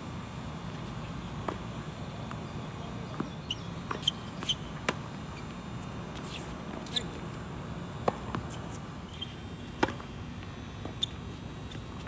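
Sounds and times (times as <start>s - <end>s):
shoe squeaks: 3.2s - 5.6s, 6.2s - 7.2s, 8.6s - 9.4s, 10.9s - 11.4s.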